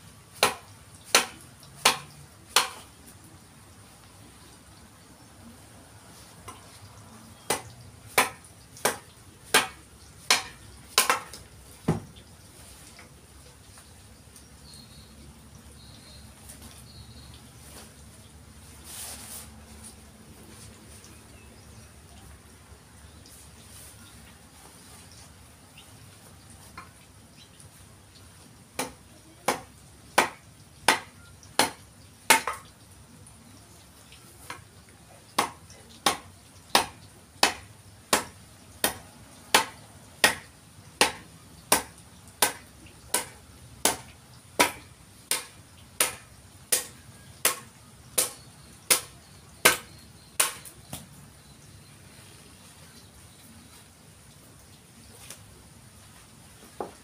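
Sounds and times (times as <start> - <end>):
hatchet chopping log: 0.4 - 2.9, 7.5 - 12.0, 28.8 - 32.6, 35.4 - 51.0.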